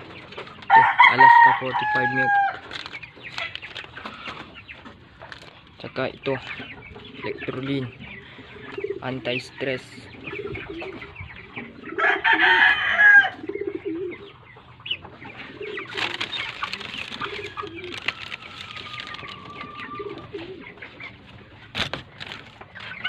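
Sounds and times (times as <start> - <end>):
chickens clucking: 0.0 - 23.0
higher chicken calling: 0.6 - 4.6, 10.3 - 21.2.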